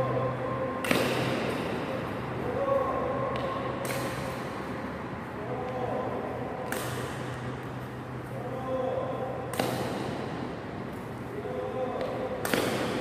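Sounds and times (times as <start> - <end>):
steady low hum: 0.0 - 13.0
racket hitting shuttlecock: 0.8 - 2.2, 3.2 - 4.8, 6.6 - 8.0, 9.3 - 11.1, 11.9 - 13.0.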